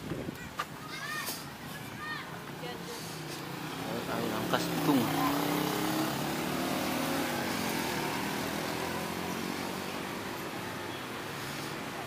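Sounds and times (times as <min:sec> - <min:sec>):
street traffic noise: 0:00.0 - 0:12.0
vehicle engine rising in pitch: 0:03.7 - 0:10.2.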